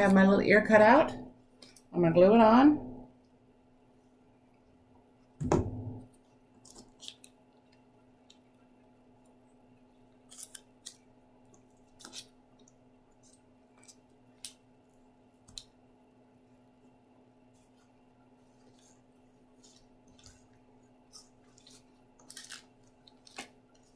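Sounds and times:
faint steady hum: 0:00.0 - 0:23.9
paper rustling: 0:18.4 - 0:23.9.

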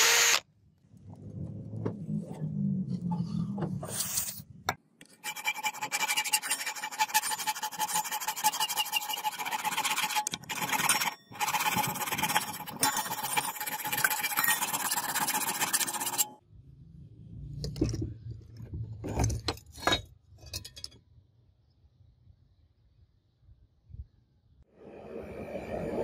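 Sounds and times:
power drill humming: 0:00.0 - 0:00.4
hand file rasping on steel: 0:05.2 - 0:16.4.

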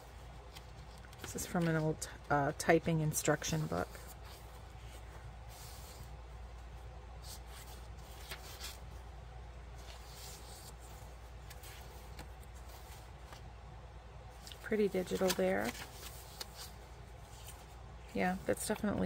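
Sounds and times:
paper pages rustling: 0:00.0 - 0:02.2, 0:07.2 - 0:09.0, 0:09.7 - 0:13.5, 0:14.4 - 0:19.0
steady low hum: 0:00.0 - 0:19.0.

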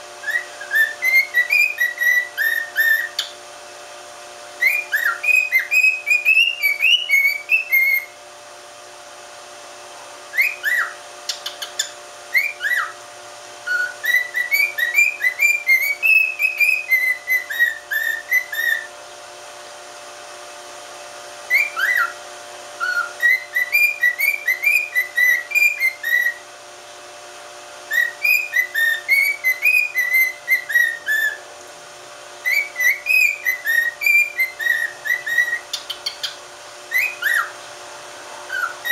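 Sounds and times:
cockatiel whistling: 0:00.2 - 0:03.4, 0:04.6 - 0:08.2, 0:10.3 - 0:13.0, 0:13.6 - 0:18.9, 0:21.5 - 0:22.2, 0:22.8 - 0:26.4, 0:27.9 - 0:31.4, 0:32.4 - 0:37.6, 0:38.5 - 0:38.9.

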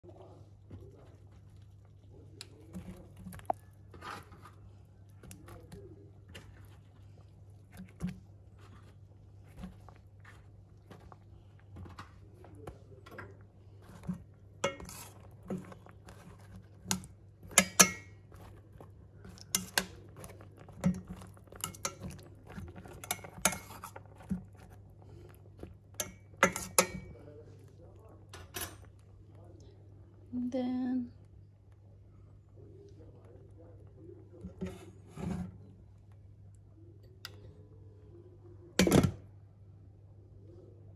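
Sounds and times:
metal spoon scraping a pot: 0:13.8 - 0:27.2, 0:34.5 - 0:35.7.

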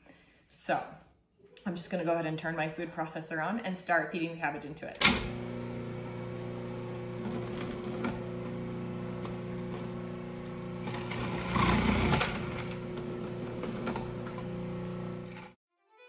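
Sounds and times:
cabbage grinding in processor: 0:05.2 - 0:15.6
food processor motor humming: 0:05.2 - 0:15.6.

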